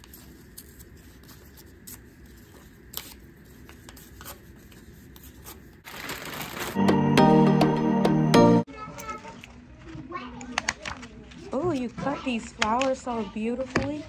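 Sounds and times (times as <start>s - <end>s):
paper tearing: 5.2s - 6.8s
plastic rustling: 5.2s - 6.8s
music: 6.8s - 8.7s.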